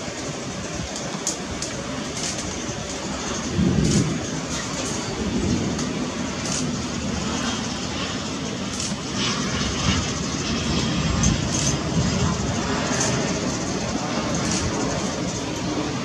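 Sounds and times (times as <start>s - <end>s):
jet engines rushing: 0.0s - 16.0s.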